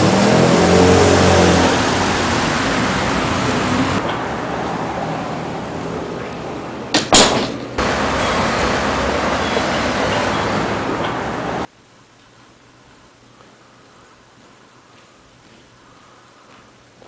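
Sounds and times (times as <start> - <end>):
vehicle engine passing: 0.0 - 6.8, 7.8 - 11.7
street traffic: 0.0 - 11.7
sharp knocks: 6.9 - 7.8.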